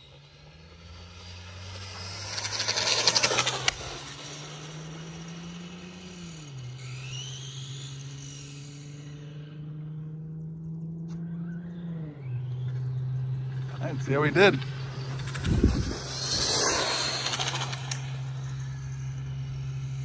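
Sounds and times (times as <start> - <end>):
rc car motor whine: 0.0 - 20.0
tyre and wind noise: 15.2 - 16.8.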